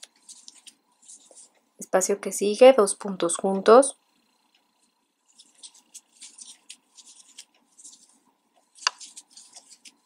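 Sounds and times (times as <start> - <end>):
yarn scratching and rustling: 0.0 - 1.6, 5.3 - 10.0.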